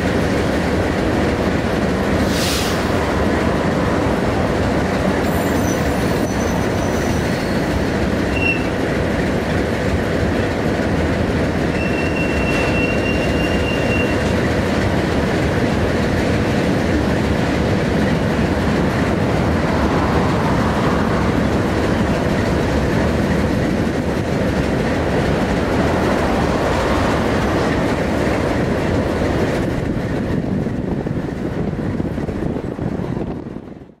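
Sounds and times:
freight cars rumbling on rails: 0.0 - 34.0
steel wheels squealing: 5.2 - 8.8, 11.7 - 14.3.

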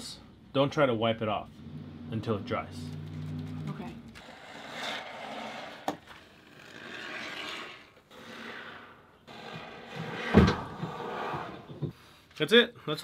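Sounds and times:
loud thump: 10.3 - 11.0.

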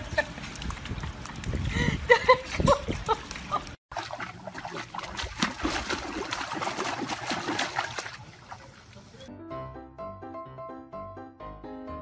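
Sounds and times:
water splashing and sloshing: 0.0 - 9.3.

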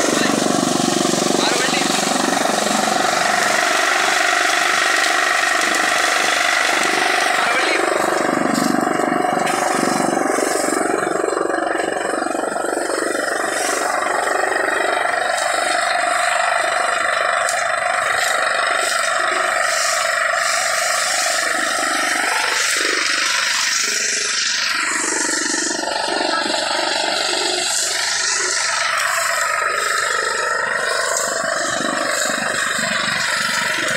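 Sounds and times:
chaff cutter blades chopping stalks: 0.0 - 33.9
tractor engine under load: 0.0 - 33.9.

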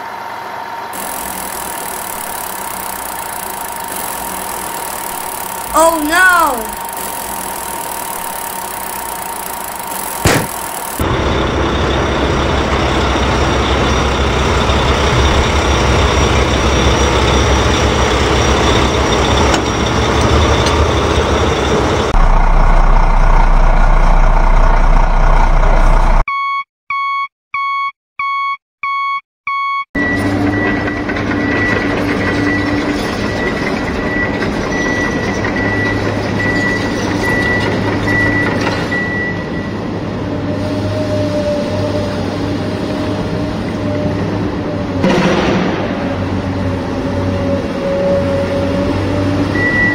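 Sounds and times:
high engine whine: 0.0 - 26.2
truck engine running: 0.0 - 26.2
electronic reversing beeps: 1.0 - 11.0, 49.5 - 49.9.

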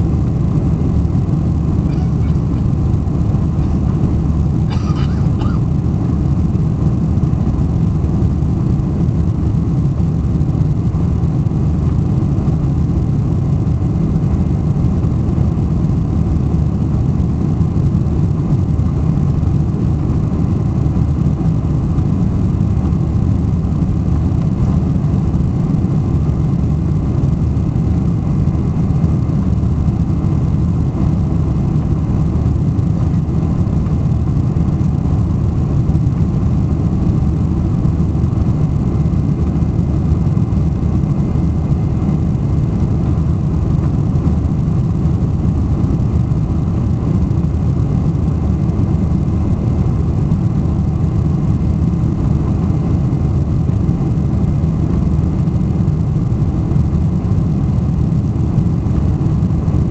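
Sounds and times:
jet engine cabin noise: 0.0 - 59.9.

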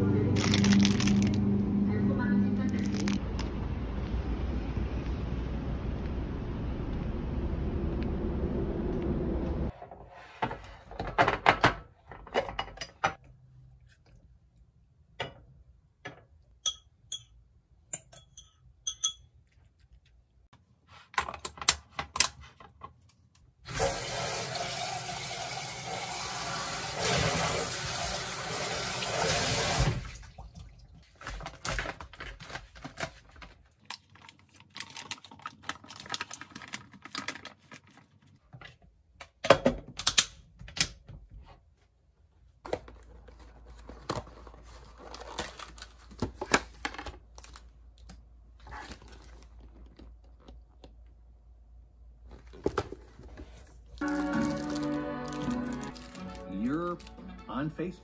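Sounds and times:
glass container and lid clinking: 18.0 - 19.3.

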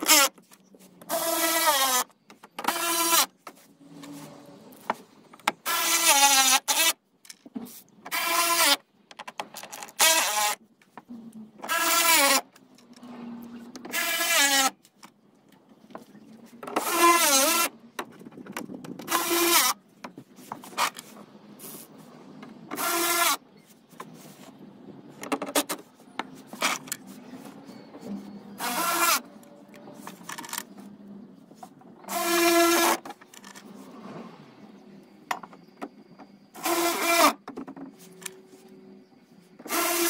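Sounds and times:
power drill driving screws: 32.1 - 33.0, 36.6 - 37.4, 39.7 - 40.0.

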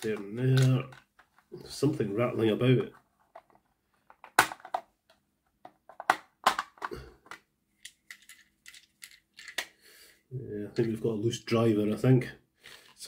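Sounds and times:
plastic clicks and crackles: 3.3 - 9.8.

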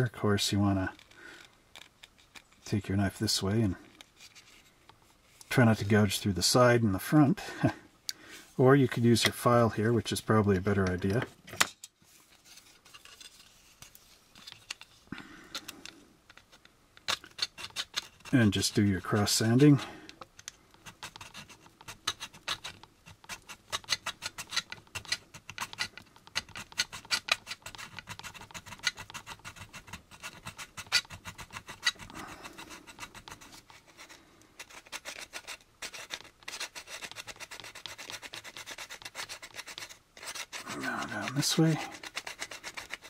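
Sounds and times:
metal file rasping on plastic: 16.3 - 19.9, 20.7 - 43.0.

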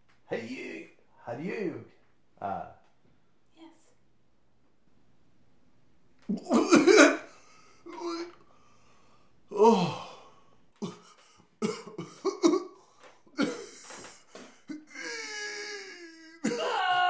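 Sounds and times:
people coughing and gagging: 6.3 - 8.4, 10.8 - 17.0
falling groan: 9.5 - 10.3.

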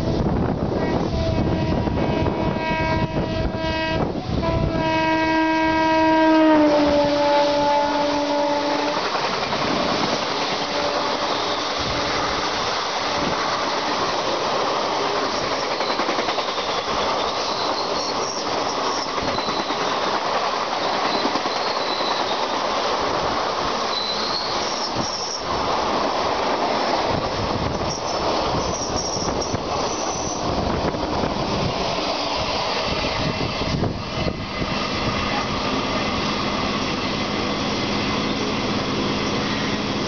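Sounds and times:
electric locomotive horn: 0.0 - 9.2, 10.5 - 12.4
train coaches rushing and clattering: 0.0 - 40.0
train wheel squeals: 6.8 - 12.6, 15.2 - 22.6, 23.8 - 25.5, 27.7 - 30.6.

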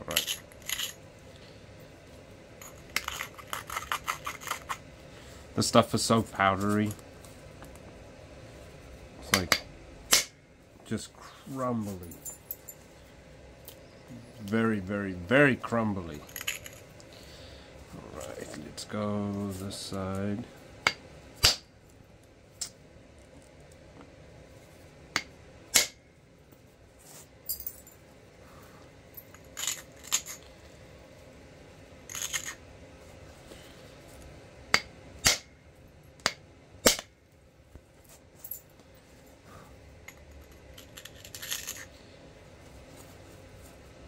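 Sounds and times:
faint handling rustle: 17.8 - 20.6, 37.7 - 44.0.

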